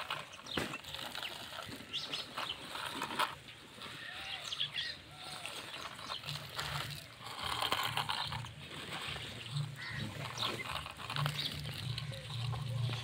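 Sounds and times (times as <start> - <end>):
toy bucket scraping sand and gravel: 0.0 - 13.0
grit clicking: 5.2 - 13.0.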